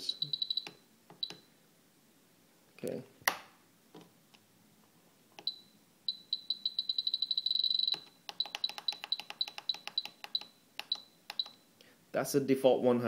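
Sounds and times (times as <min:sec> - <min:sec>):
clicks: 0:07.9 - 0:11.6.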